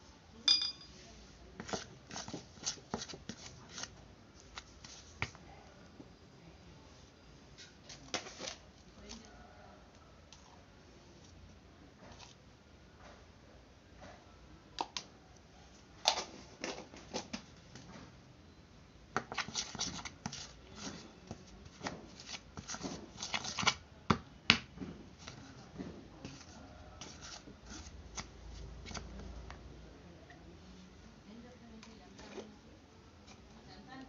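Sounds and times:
spoon tapping bowl: 0.5s - 1.0s.

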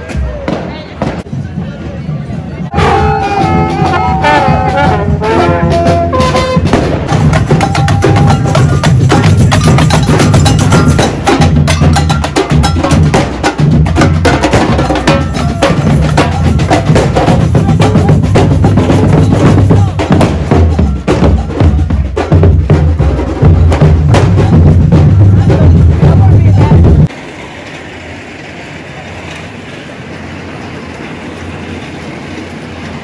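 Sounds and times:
marching drum band drumming: 2.7s - 27.1s
short tune on pitched instrument: 2.8s - 6.8s.

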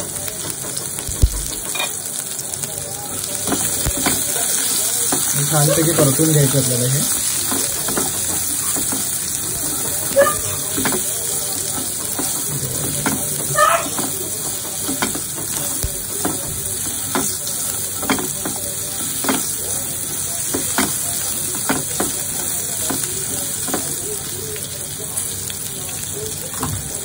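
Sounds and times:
meat sizzling in oil: 0.0s - 27.0s
spatula scraping a pan: 7.1s - 17.4s.

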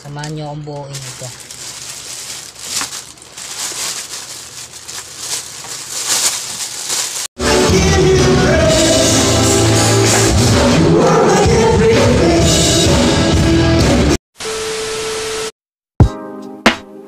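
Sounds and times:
plastic packaging crinkling: 0.0s - 7.4s
loud music with singing: 7.4s - 14.2s.

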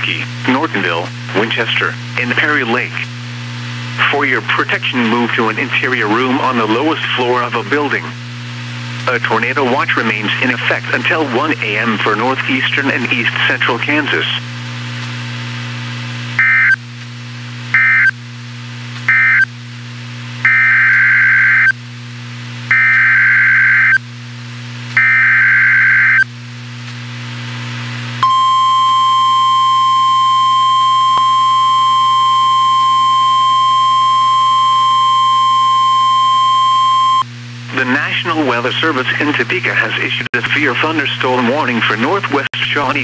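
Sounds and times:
steady high alarm tone: 19.1s - 19.4s, 20.5s - 21.7s, 22.7s - 24.0s, 25.0s - 26.2s, 28.2s - 37.2s.

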